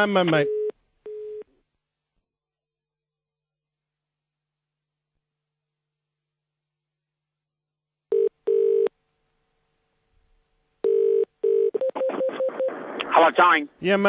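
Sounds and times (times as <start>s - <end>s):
telephone ringback tone: 8.1s - 8.9s, 10.8s - 12.7s.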